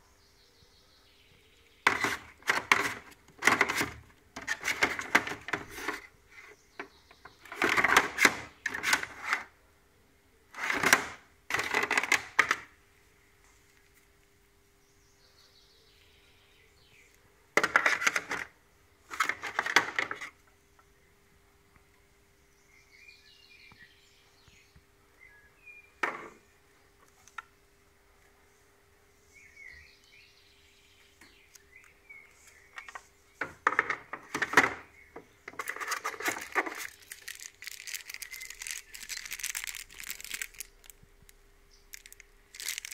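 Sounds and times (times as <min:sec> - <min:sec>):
clattering and rustling of handled equipment: 0:01.8 - 0:06.1, 0:07.5 - 0:09.5, 0:10.6 - 0:12.6, 0:35.5 - 0:41.0, 0:41.9 - 0:42.9.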